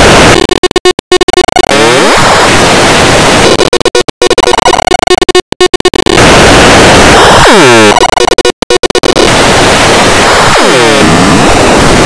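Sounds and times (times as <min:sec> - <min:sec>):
held tones: 0:00.0 - 0:02.4, 0:03.4 - 0:09.3
distorted stuttering noise: 0:00.0 - 0:12.0.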